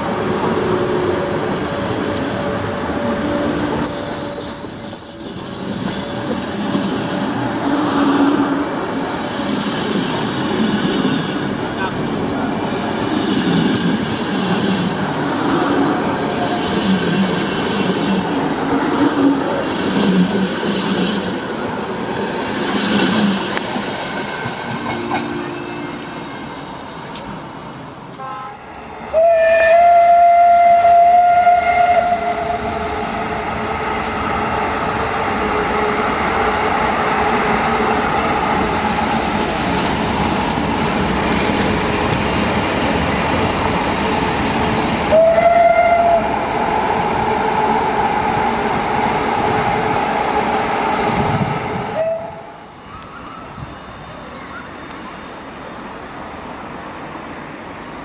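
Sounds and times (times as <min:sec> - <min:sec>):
train wheels rumbling on rail: 0:00.0 - 0:58.0
locomotive horn blast: 0:28.2 - 0:32.7, 0:45.1 - 0:46.3.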